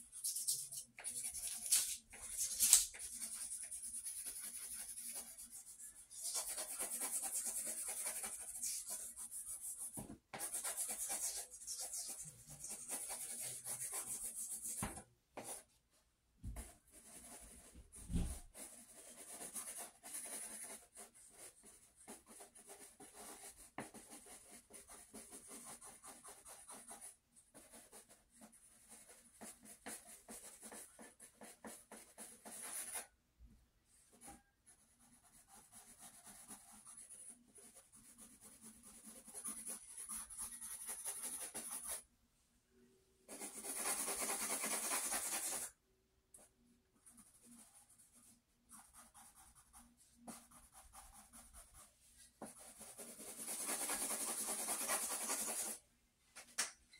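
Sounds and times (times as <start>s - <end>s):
pencil scratching on paper: 0.0s - 15.7s, 16.5s - 33.1s, 34.1s - 42.0s, 43.3s - 45.7s, 46.4s - 55.8s.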